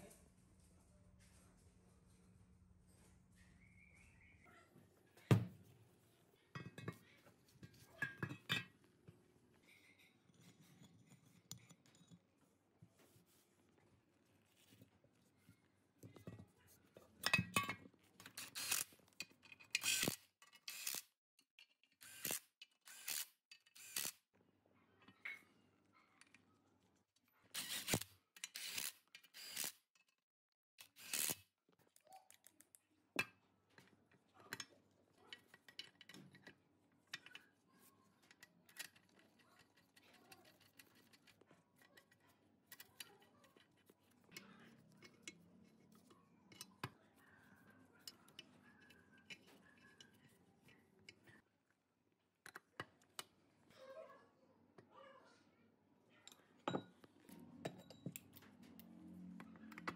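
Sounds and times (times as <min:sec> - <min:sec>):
metal parts clicking and scraping: 0:17.3 - 0:24.2, 0:35.3 - 0:46.8.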